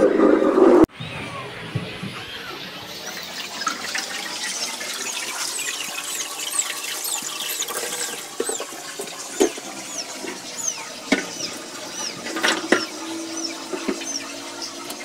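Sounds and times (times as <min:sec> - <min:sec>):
tap water running into sink: 0:03.0 - 0:15.0.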